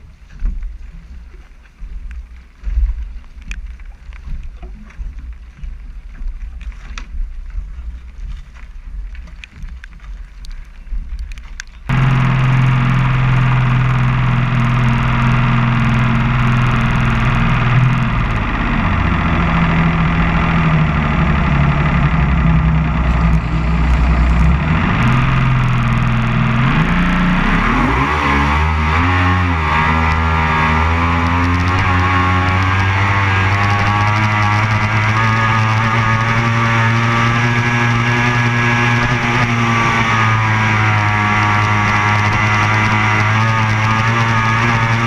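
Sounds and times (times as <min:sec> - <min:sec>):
water and wind noise: 0:00.0 - 0:45.0
powerboat engine running: 0:11.2 - 0:45.0.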